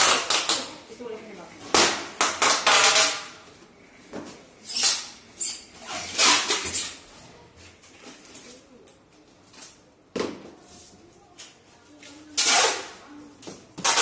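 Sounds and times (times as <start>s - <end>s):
packing tape pulled off roll: 5.8s - 7.0s, 12.4s - 13.0s.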